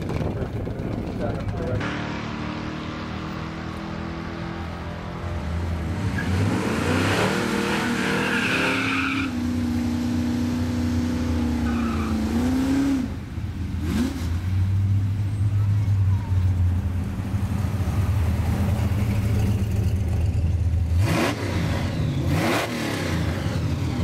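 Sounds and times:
drag car engine revving: 0:00.0 - 0:14.7, 0:17.1 - 0:24.0
tires squealing: 0:06.0 - 0:09.4, 0:11.4 - 0:12.9.

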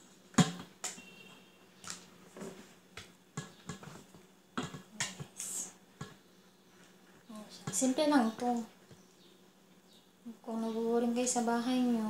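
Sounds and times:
spatula tapping and scraping dishes: 0:03.0 - 0:05.3, 0:06.0 - 0:06.2.

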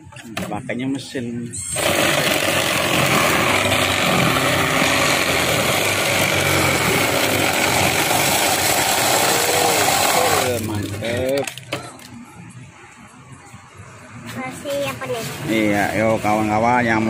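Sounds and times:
ice shaver motor grinding ice: 0:01.6 - 0:11.6.

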